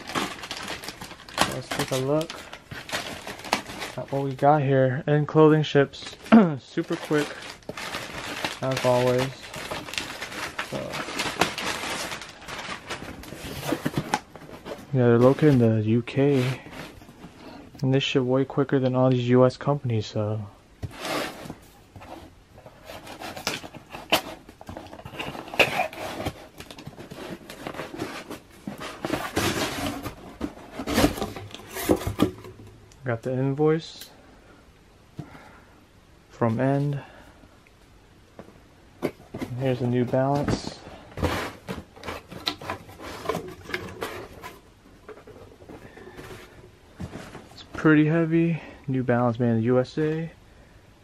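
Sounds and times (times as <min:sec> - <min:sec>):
cardboard scraping and rustling: 0:00.0 - 0:04.4, 0:06.1 - 0:17.4, 0:20.8 - 0:32.7, 0:39.0 - 0:47.8.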